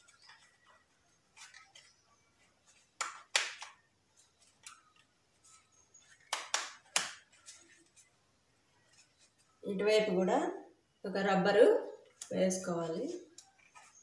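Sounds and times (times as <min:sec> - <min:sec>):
rubber band snapping and rubbing: 0:06.2 - 0:07.3.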